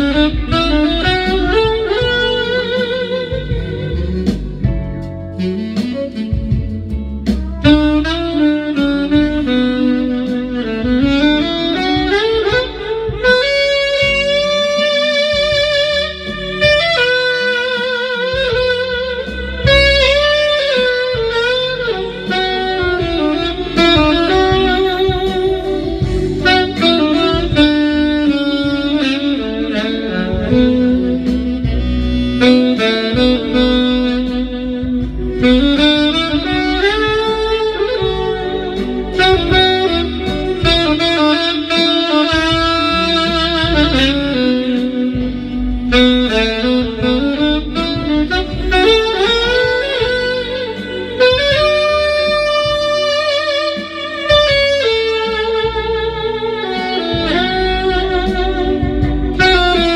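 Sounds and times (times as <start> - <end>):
alto saxophone melody: 0.0 - 59.9
backing track with bass and drums: 0.0 - 59.9.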